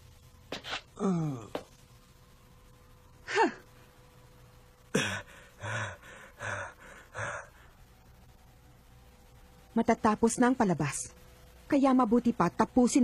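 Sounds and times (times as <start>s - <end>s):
heavy ragged panting: 5.0s - 7.7s.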